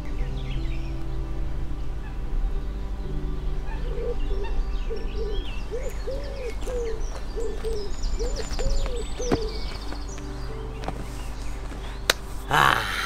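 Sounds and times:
songbirds chirping and trilling: 0:00.0 - 0:13.0
bird cooing calls: 0:03.7 - 0:10.2.

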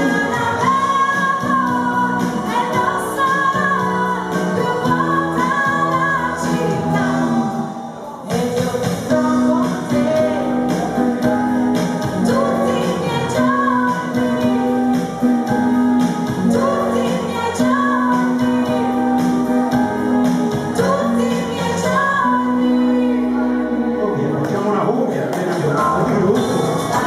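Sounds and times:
woman singing: 0:00.0 - 0:23.9, 0:26.8 - 0:27.0
bass line: 0:00.0 - 0:27.0
steady drum beat: 0:25.4 - 0:27.0.

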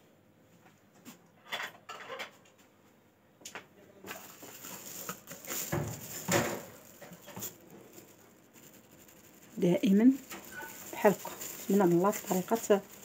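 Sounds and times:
plastic bag crinkling: 0:04.1 - 0:13.0.

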